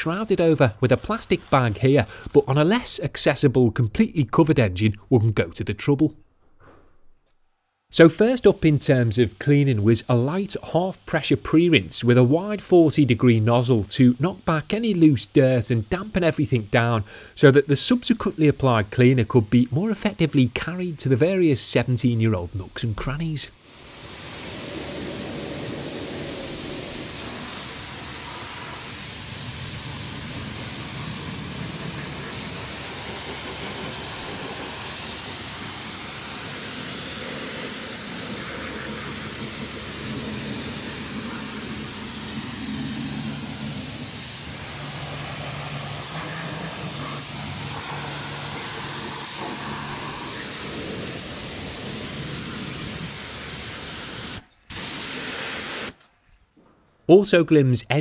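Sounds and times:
water spray hissing: 0.0 - 2.9, 8.1 - 56.0
pressure washer motor hum: 23.2 - 56.0.

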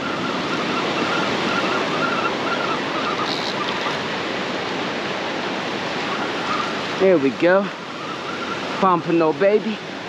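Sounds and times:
ocean surf washing ashore: 0.0 - 10.0
fishing reel whine: 3.0 - 4.1.

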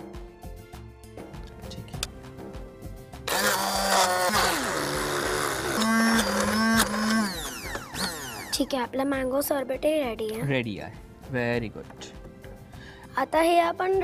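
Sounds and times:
soft background music: 0.0 - 14.0
stick blender motor: 3.3 - 8.8.

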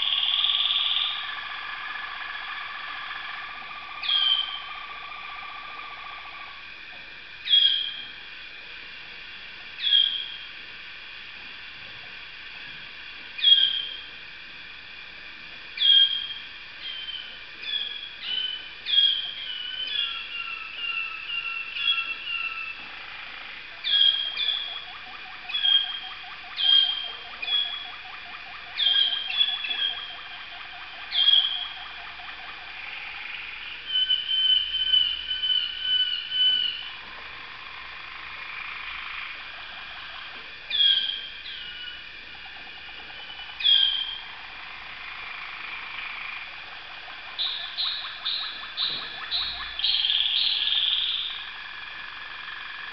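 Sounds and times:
fast bright bird trill: 0.0 - 1.3, 4.0 - 4.8, 15.8 - 22.8, 23.8 - 24.9, 25.5 - 28.0, 28.8 - 30.4, 31.0 - 31.8, 33.3 - 36.9, 40.7 - 42.0, 43.2 - 44.2, 47.4 - 51.4
canaries singing: 0.0 - 6.6, 7.4 - 8.1, 9.8 - 10.4, 13.4 - 14.0, 15.8 - 51.8.

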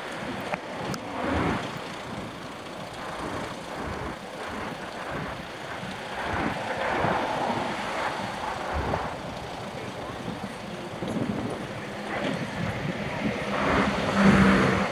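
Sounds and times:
rumbling street traffic: 0.0 - 14.9
wind buffeting microphone: 0.0 - 14.9.

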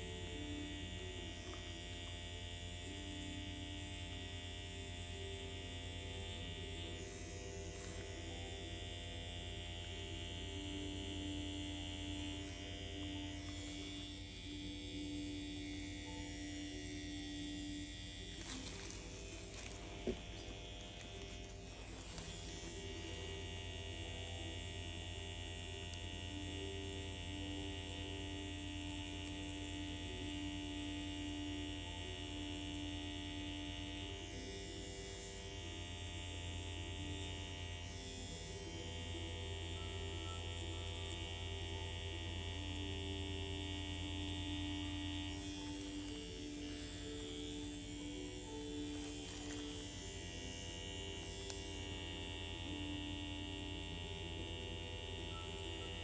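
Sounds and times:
small motor humming: 0.0 - 56.0.

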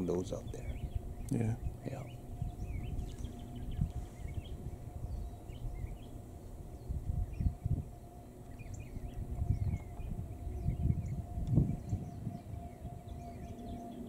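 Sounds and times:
bird chirps and calls: 0.0 - 7.6, 8.4 - 14.0
wind rumble on microphone: 0.0 - 14.0.

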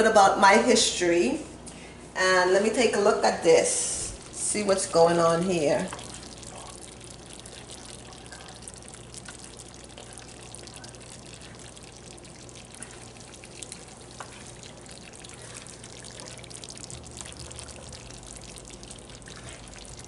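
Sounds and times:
low steady hum: 0.0 - 20.0
gravy bubbling and popping: 4.1 - 20.0
spoon stirring: 5.5 - 20.0.

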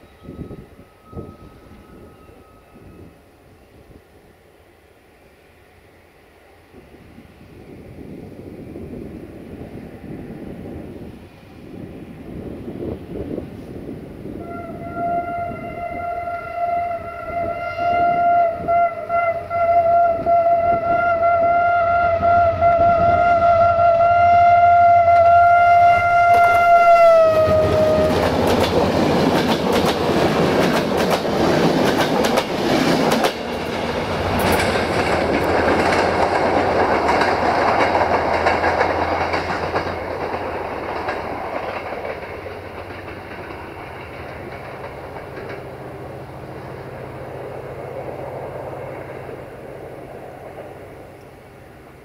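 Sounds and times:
locomotive horn: 14.3 - 28.7
train wheels clicking over rail joints: 27.3 - 51.4.

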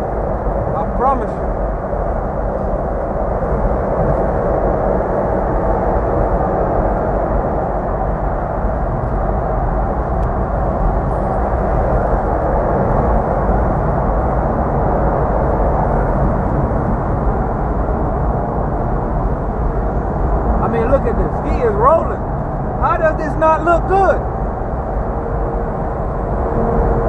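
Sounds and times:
wind noise: 0.0 - 27.0
tyres on the road: 20.1 - 26.7.

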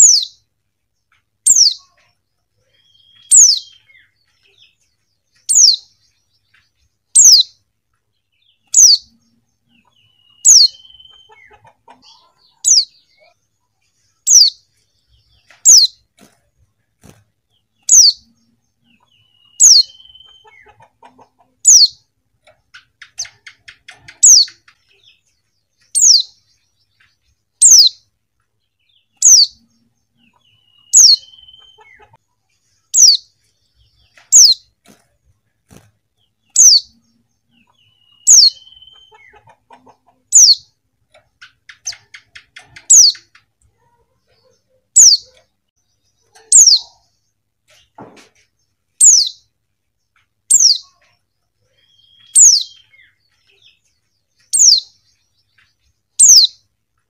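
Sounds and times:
soft bird chatter: 0.0 - 57.0.

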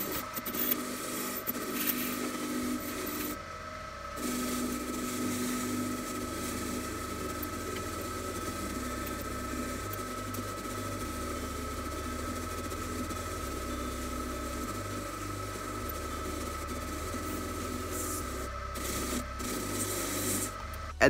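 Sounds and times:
bench grinder whine: 0.0 - 21.0.

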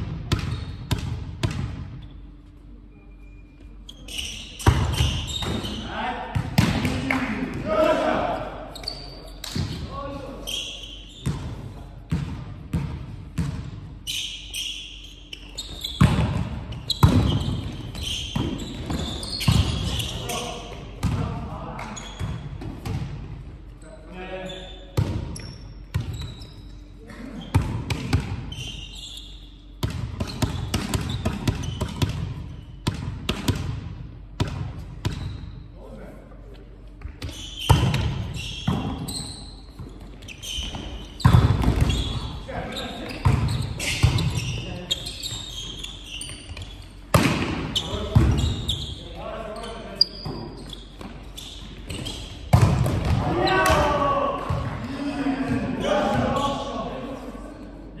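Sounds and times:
shoe squeaks: 0.4 - 0.9, 2.0 - 5.9, 8.7 - 11.6, 14.0 - 20.7, 21.8 - 22.6, 23.8 - 27.5, 28.5 - 32.8, 37.0 - 47.1, 47.7 - 52.5
volleyball hits echoing: 4.6 - 8.2, 41.2 - 42.2, 47.1 - 48.5, 52.5 - 56.4
volleyball thuds echoing: 52.5 - 54.9.

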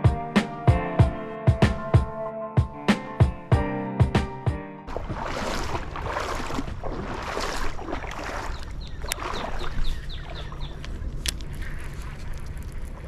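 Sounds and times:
creek water splashing: 4.8 - 13.0.

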